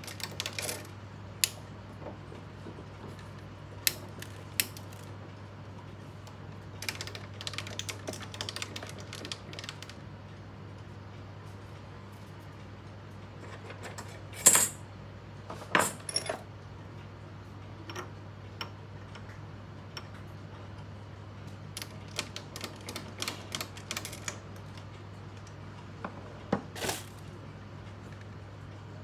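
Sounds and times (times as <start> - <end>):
low steady hum: 0.0 - 29.0.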